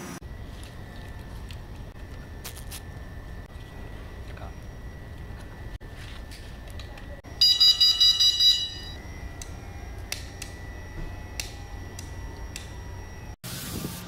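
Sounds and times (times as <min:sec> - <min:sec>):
electronic beeper pulses: 0:07.3 - 0:13.4.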